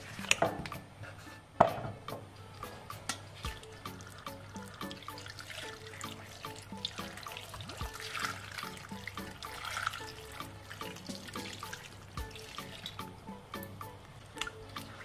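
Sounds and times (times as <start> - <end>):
background music: 0.0 - 15.0
tap water pouring into bowl: 3.4 - 13.8.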